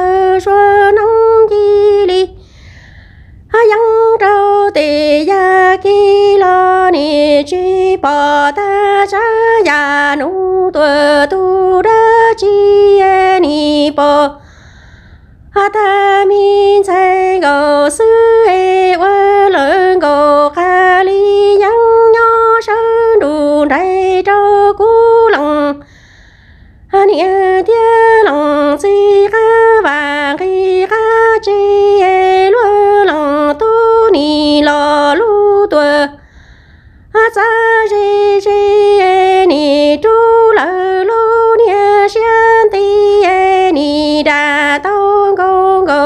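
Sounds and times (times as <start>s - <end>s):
woman singing unaccompanied: 0.0s - 2.6s, 3.4s - 14.5s, 15.4s - 26.0s, 26.8s - 36.3s, 37.0s - 46.0s.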